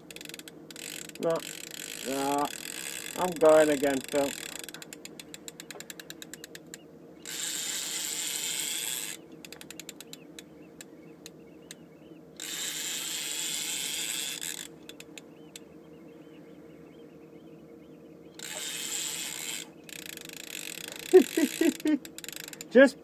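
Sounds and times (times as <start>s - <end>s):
fishing reel ticking clicks: 0.0s - 10.5s, 12.4s - 15.2s, 18.4s - 22.7s
reel drag buzzing: 0.0s - 11.8s, 12.4s - 15.7s, 18.3s - 22.9s.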